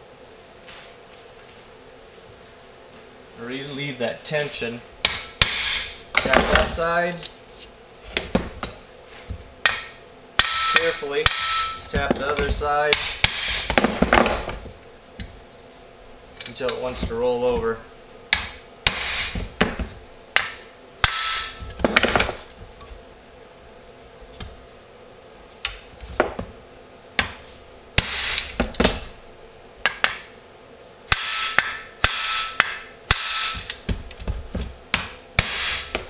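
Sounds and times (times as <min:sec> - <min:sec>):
hammer tapping steel punch: 0:09.6 - 0:15.3, 0:18.3 - 0:22.5, 0:31.1 - 0:36.0.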